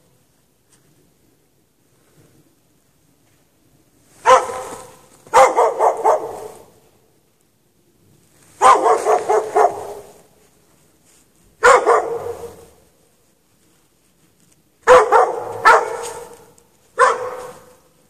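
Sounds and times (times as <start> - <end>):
dog barking with echo: 4.2 - 6.8, 8.6 - 10.2, 11.6 - 12.8, 14.9 - 17.9.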